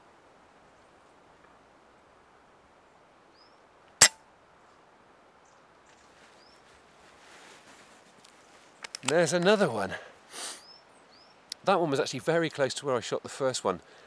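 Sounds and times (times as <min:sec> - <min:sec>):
faint outdoor hiss: 0:00.0 - 0:14.0
bird chirps: 0:10.6 - 0:11.4.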